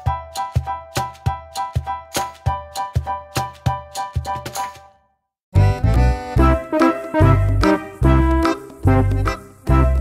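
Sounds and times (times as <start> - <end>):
music with quick steady beat: 5.6 - 10.0.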